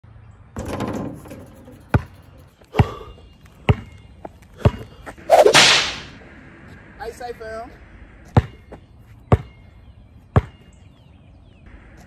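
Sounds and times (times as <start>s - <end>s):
basketball bouncing on concrete: 0.6s - 2.2s, 3.6s - 4.0s, 4.6s - 4.9s, 8.3s - 9.6s, 10.3s - 10.6s
loud rushing burst: 5.3s - 6.2s.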